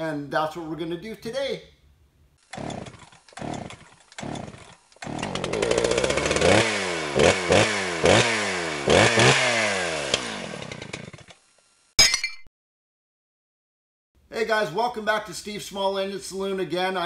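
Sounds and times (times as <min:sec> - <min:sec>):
small petrol engine revving: 0:02.4 - 0:11.5.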